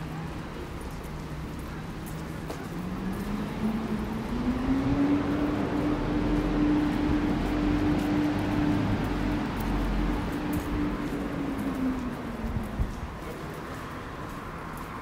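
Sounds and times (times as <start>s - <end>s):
street traffic: 0.0s - 15.0s
vehicle engine pulling away: 2.2s - 12.4s.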